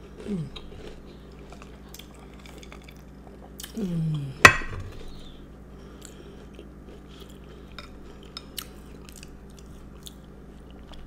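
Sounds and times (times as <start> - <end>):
cookie crunching: 0.0 - 3.8
faint low hum: 0.0 - 11.0.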